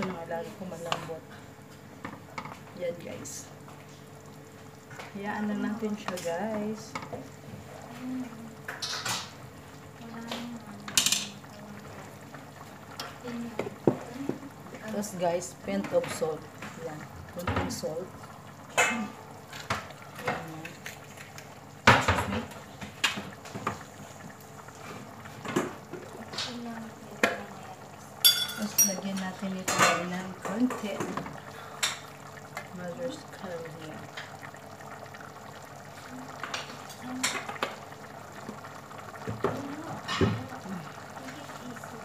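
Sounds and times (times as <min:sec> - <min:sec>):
curry simmering in a pot: 0:00.0 - 0:42.0
pots and utensils clattering: 0:08.7 - 0:09.4, 0:10.9 - 0:11.5, 0:18.7 - 0:23.8, 0:28.2 - 0:32.1, 0:39.2 - 0:40.5.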